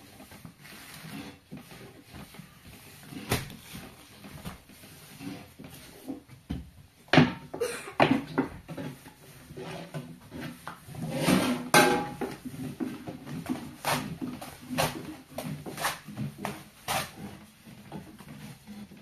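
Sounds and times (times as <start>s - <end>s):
objects knocking and clattering: 6.1s - 9.2s, 9.8s - 16.7s.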